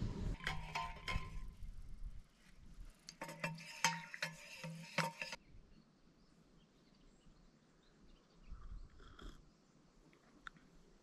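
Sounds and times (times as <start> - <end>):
spoon clinking in metal mug: 3.2 - 5.4.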